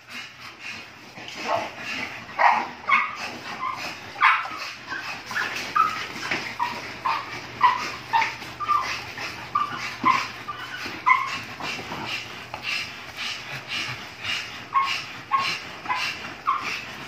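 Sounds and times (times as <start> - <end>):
dog whimpering and yipping: 2.4 - 11.5.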